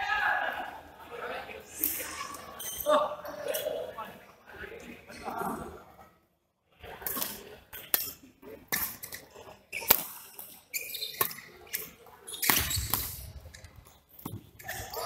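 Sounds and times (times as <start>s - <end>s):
shoes squeaking: 9.4s - 15.0s.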